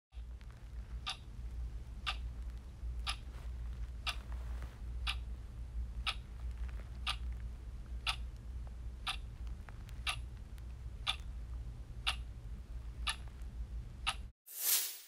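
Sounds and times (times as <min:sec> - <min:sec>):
clock-like ticking: 0:01.0 - 0:01.2, 0:02.0 - 0:02.3, 0:05.0 - 0:05.2, 0:06.0 - 0:06.2, 0:08.0 - 0:08.2, 0:09.0 - 0:09.2, 0:10.0 - 0:10.2, 0:12.0 - 0:12.2, 0:14.0 - 0:14.3.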